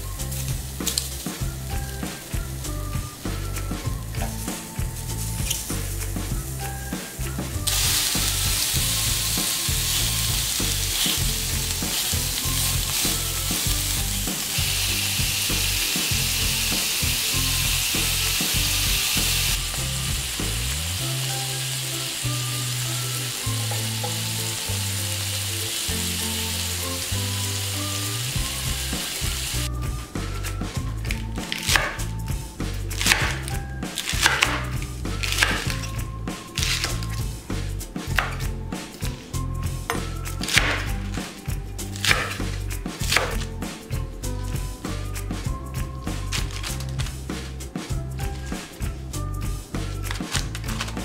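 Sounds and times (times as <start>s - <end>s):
sausages sizzling in a pan: 0.0s - 29.8s
background music bass line: 0.0s - 51.0s.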